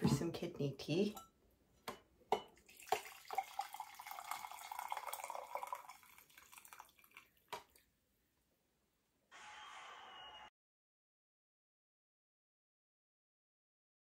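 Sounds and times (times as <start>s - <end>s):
water pouring into a mug: 2.6s - 7.8s.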